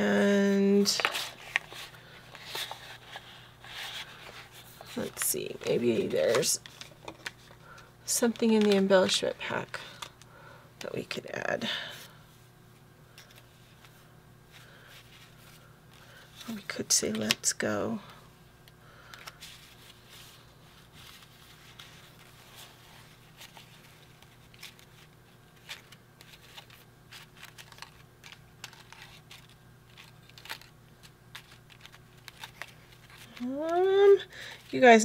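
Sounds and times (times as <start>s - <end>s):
low steady hum: 0.0s - 35.0s
paper rustling and clicking: 0.8s - 8.9s, 21.0s - 34.6s.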